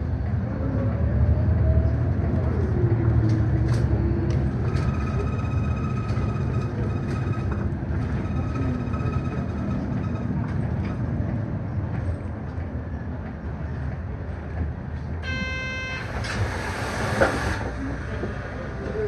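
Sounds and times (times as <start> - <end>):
bus running noise: 0.0 - 19.0
short electronic beep: 15.2 - 16.4.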